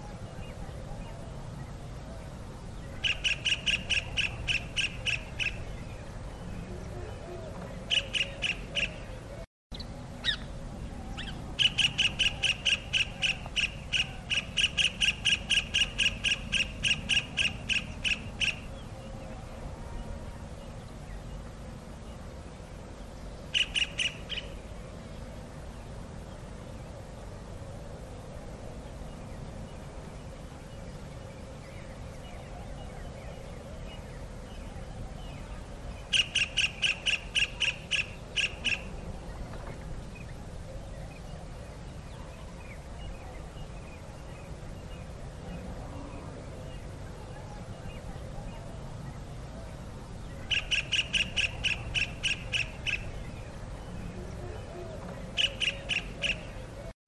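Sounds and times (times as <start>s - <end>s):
low background hiss: 0.0s - 57.0s
kingfisher calling: 3.0s - 5.6s, 7.9s - 9.1s, 11.2s - 18.7s, 23.5s - 24.6s, 36.1s - 39.0s, 50.4s - 53.2s, 55.3s - 56.6s.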